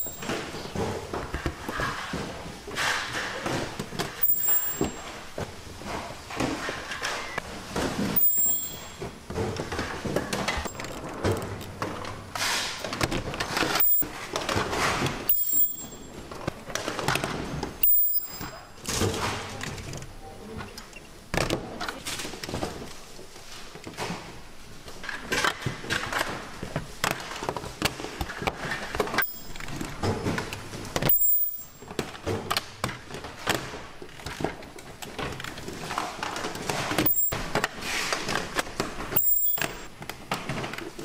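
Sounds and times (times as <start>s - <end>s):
clicks and clatter of machinery: 5.9s - 20.1s.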